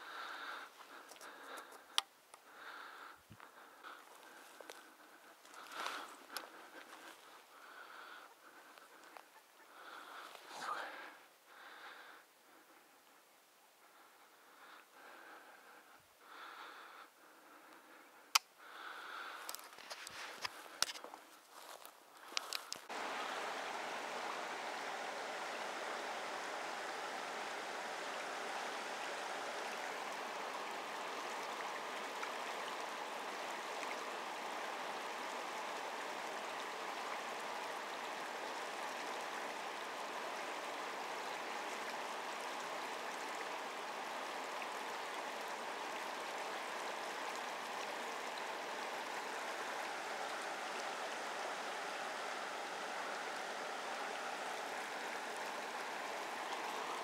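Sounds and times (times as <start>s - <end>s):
river flowing over rocks: 21.5s - 57.0s.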